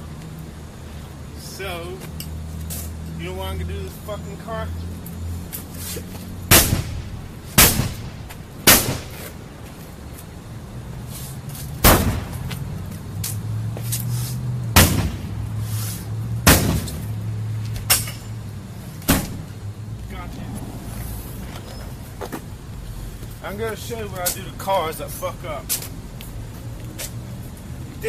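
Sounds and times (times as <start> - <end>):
axe striking car body: 6.5 - 8.1, 14.7 - 15.3, 16.4 - 17.0, 19.0 - 19.4.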